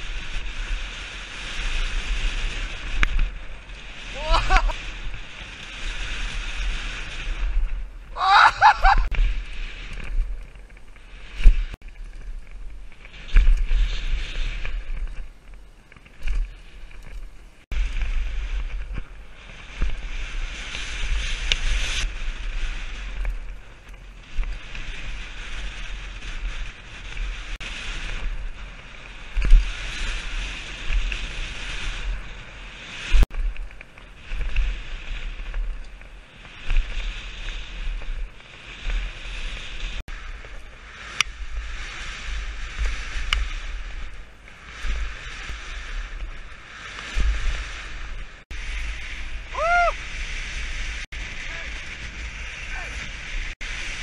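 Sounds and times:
tyres hissing on gravel: 0:00.0 - 0:11.8
bike knocking and rattling: 0:00.0 - 0:54.0
wind buffeting microphone: 0:00.0 - 0:54.0.

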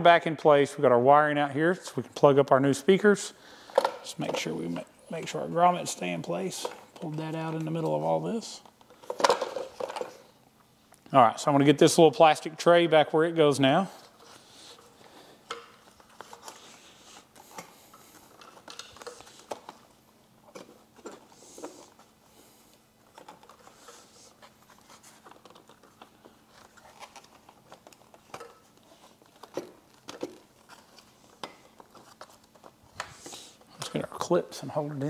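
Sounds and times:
plastic and wiring rustling: 0:03.8 - 0:10.4, 0:13.6 - 0:34.0.

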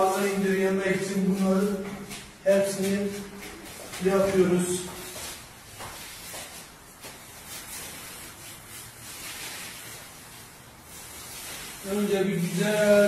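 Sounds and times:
paint rubbing swishes: 0:00.0 - 0:13.0.

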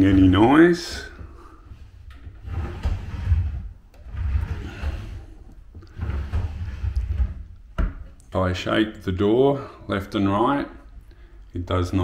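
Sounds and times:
drawer rolling on rails: 0:02.0 - 0:07.6.

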